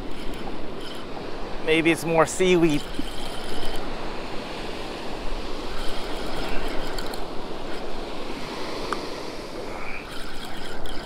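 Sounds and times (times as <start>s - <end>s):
fishing reel cranking: 0.0s - 1.3s, 2.0s - 4.0s, 5.5s - 8.2s, 8.9s - 11.0s.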